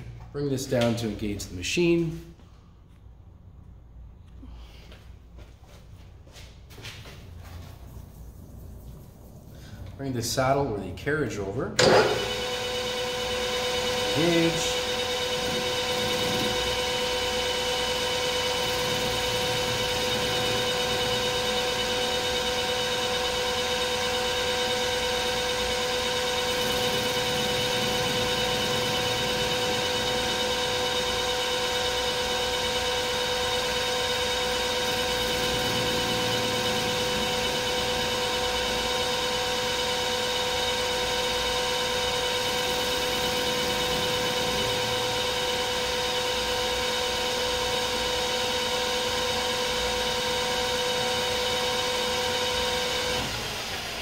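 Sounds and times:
metal lathe cutting hum: 0:11.8 - 0:54.0.

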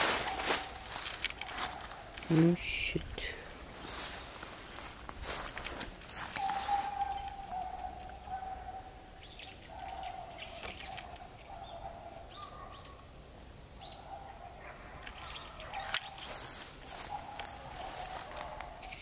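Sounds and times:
small birds chirping: 0:00.0 - 0:19.0
crackling and clicks in brush: 0:00.2 - 0:02.4.

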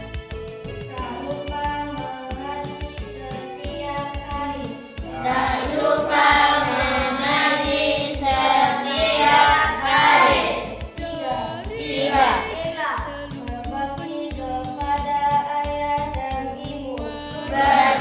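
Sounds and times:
background music with low beat: 0:00.0 - 0:18.0
children chanting in unison: 0:05.1 - 0:10.8, 0:11.7 - 0:12.8, 0:17.5 - 0:18.0.

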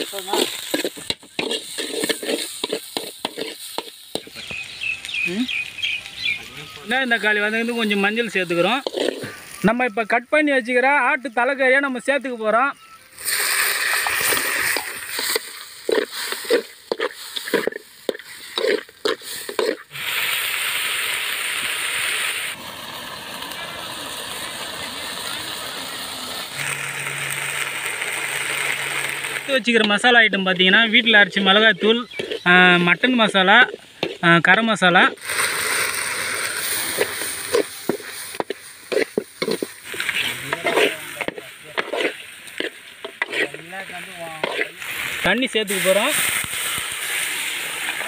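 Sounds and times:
metal spoon scraping pan: 0:00.0 - 0:04.3, 0:08.5 - 0:09.4, 0:14.0 - 0:19.9, 0:31.3 - 0:32.6, 0:36.8 - 0:43.6, 0:44.4 - 0:44.8
food sizzling in oil: 0:00.0 - 0:48.0.

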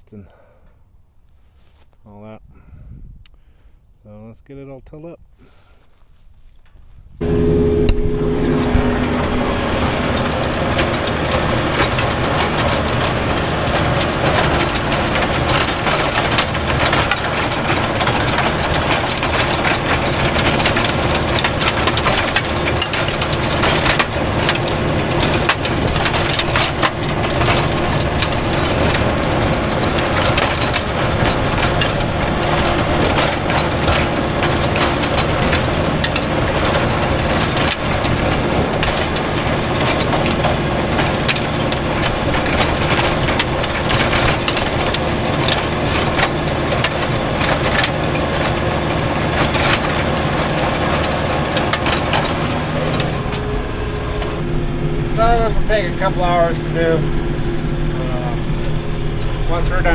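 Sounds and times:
tractor diesel engine under load: 0:07.2 - 0:59.9
rototiller tines clattering: 0:08.2 - 0:54.5.

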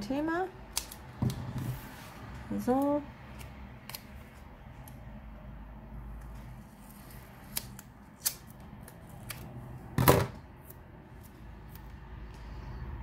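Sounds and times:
scissors snipping: 0:00.7 - 0:01.1, 0:02.7 - 0:05.0, 0:07.0 - 0:09.5.

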